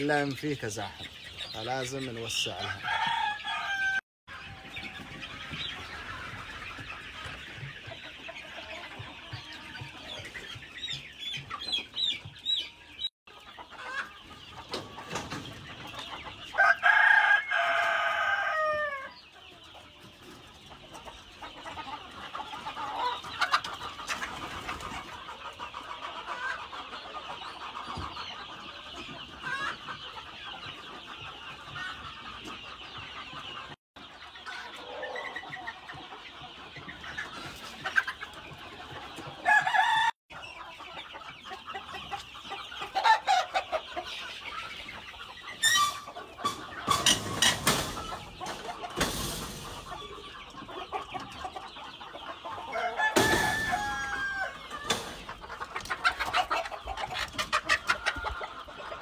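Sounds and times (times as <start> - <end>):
chickens clucking and peeping: 0.0 - 59.0
rooster crowing: 2.8 - 4.0, 16.6 - 19.1, 39.4 - 40.2, 52.7 - 54.6.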